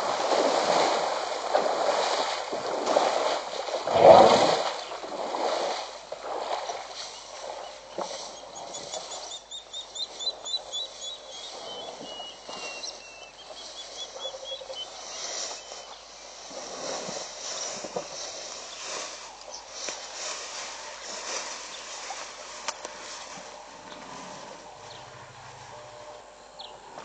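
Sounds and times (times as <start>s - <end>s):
bird chirping and whistling: 8.4s - 16.0s.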